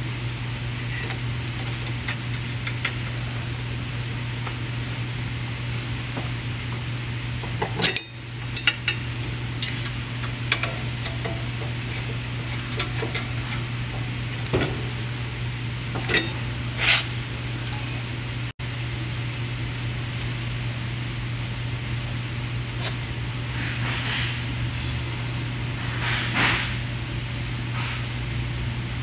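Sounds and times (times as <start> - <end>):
steady low hum: 0.0 - 29.0
metallic clinks and knocks: 7.6 - 13.5, 16.0 - 16.8, 17.4 - 18.1.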